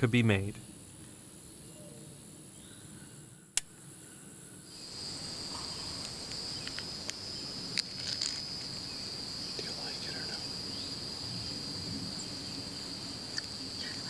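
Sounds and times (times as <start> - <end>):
insects droning: 0.0 - 14.0.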